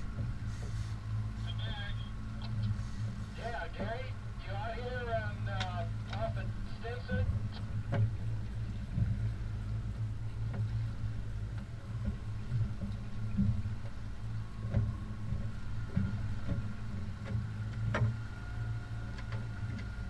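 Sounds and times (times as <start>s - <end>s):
outboard motor droning: 0.0s - 20.0s
sharp knocks on boat: 5.2s - 20.0s.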